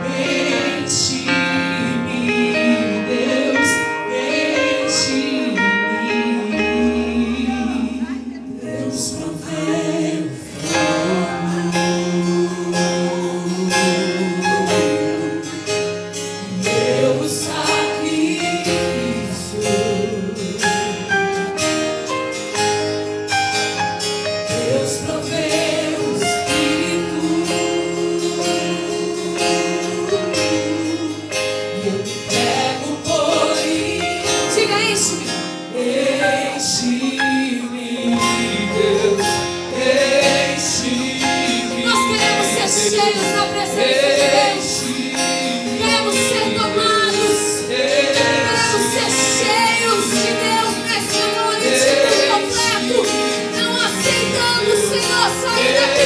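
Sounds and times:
backing singers: 0.0 - 22.0, 24.4 - 56.0
band with guitar: 0.0 - 56.0
woman singing: 24.9 - 39.2, 41.3 - 56.0.

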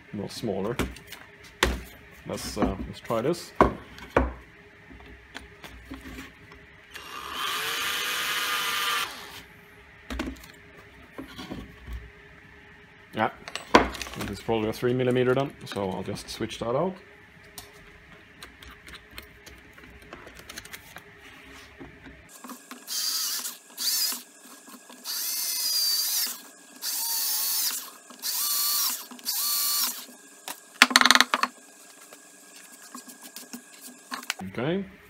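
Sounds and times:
cordless drill motor: 6.9 - 9.5, 22.3 - 34.1.

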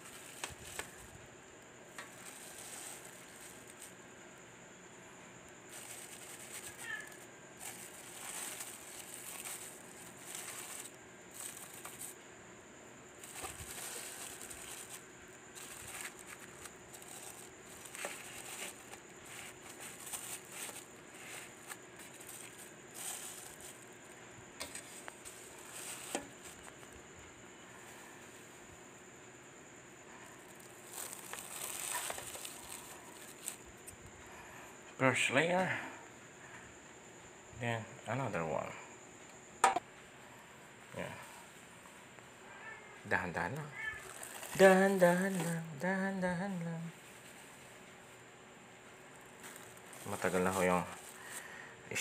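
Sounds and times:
plastic wrap crinkling: 0.0 - 1.1, 2.0 - 4.0, 5.7 - 12.2, 13.2 - 23.9, 24.7 - 27.0, 30.4 - 33.6, 44.0 - 45.7, 49.2 - 51.5.

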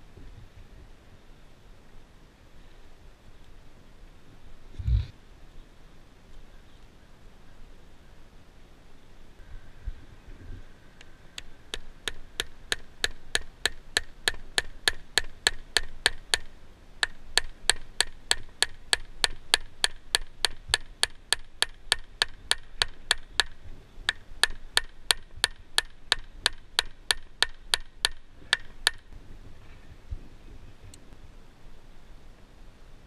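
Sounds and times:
hammer tapping metal fastener: 11.4 - 23.5, 24.1 - 29.0.

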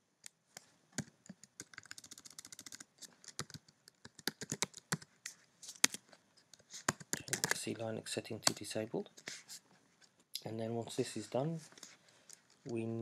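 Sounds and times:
computer keyboard typing: 1.0 - 5.1, 6.9 - 7.7.

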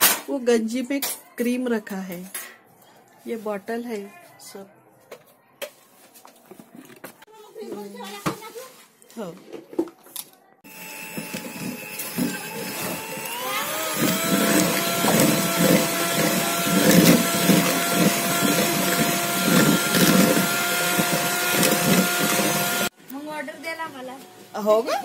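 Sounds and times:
electric hand mixer whipping cream: 10.7 - 22.9.

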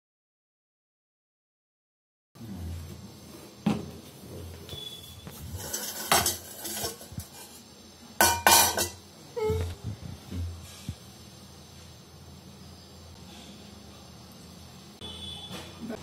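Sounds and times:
metal plate and spoon clattering: 5.6 - 7.6, 8.2 - 9.0.

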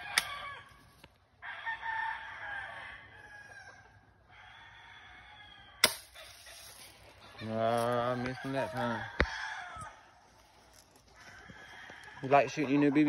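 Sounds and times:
rooster crowing: 0.0 - 0.8, 1.4 - 5.8, 7.3 - 10.2, 11.1 - 13.0
bb gun shot crack: 5.8 - 6.2.

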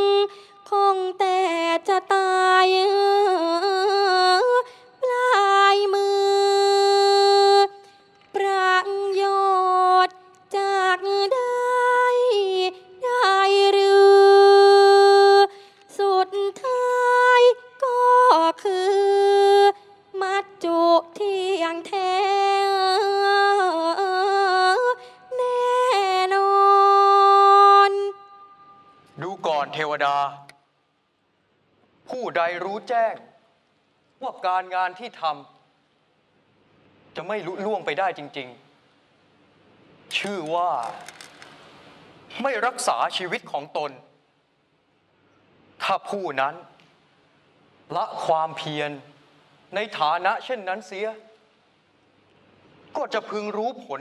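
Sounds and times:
woman singing ornamented song: 0.0 - 29.0.

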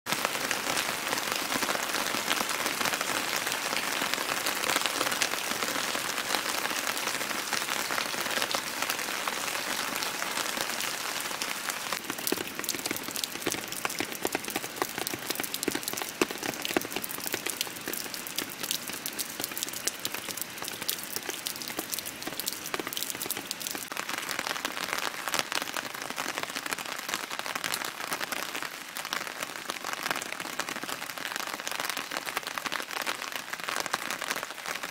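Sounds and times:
rain falling on pond and deck: 0.1 - 34.9
raindrop hits: 12.0 - 24.0.

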